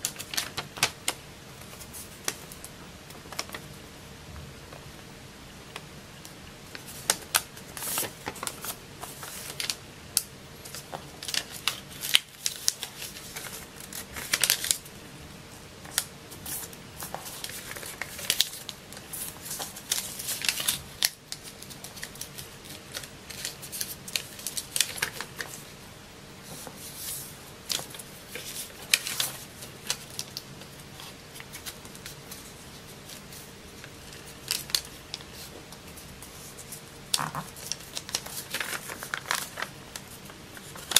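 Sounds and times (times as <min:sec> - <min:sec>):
paper being folded and creased: 0:10.6 - 0:14.9, 0:15.9 - 0:25.7, 0:26.4 - 0:40.9.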